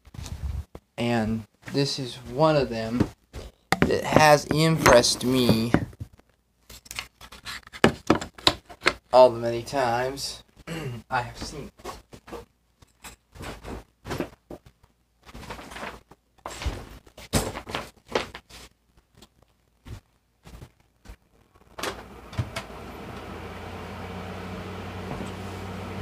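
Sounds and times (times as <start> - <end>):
knocks thumps and clatter: 3.7 - 6.1
chair being pulled up: 24.9 - 25.9.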